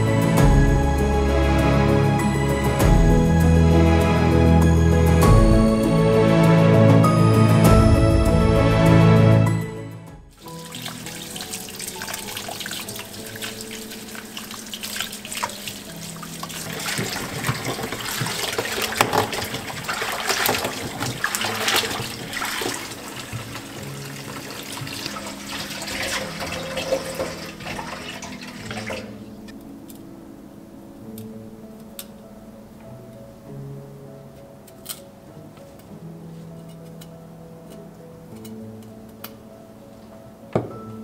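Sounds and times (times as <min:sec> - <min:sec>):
soft background music: 0:00.0 - 0:41.0
tap water running into a bowl: 0:10.4 - 0:29.2
hands rubbing vegetables in water: 0:10.4 - 0:29.3.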